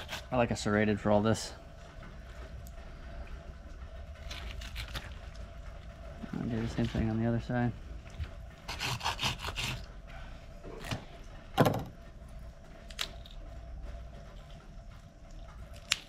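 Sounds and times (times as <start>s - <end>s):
knife sawing through bone: 0.0s - 0.4s, 8.7s - 9.9s.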